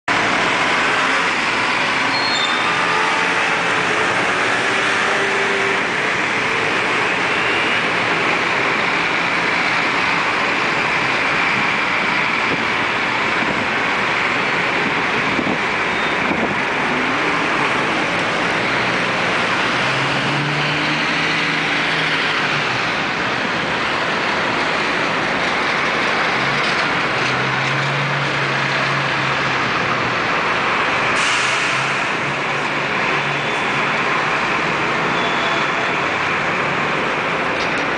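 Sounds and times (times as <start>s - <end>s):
city street traffic: 0.0s - 37.9s.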